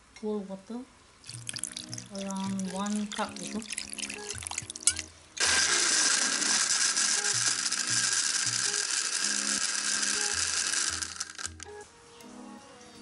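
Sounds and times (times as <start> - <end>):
water pouring over ice: 1.2 - 11.7
electric blender running: 5.4 - 11.7.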